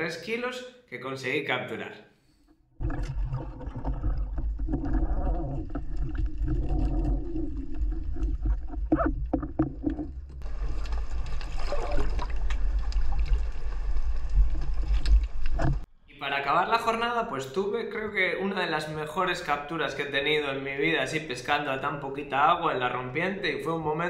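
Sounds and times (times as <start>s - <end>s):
low rumble of water: 2.8s - 15.9s.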